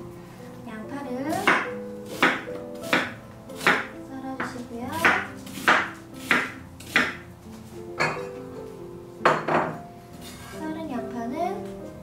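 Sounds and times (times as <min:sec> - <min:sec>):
knife chopping on cutting board: 0:01.3 - 0:07.2.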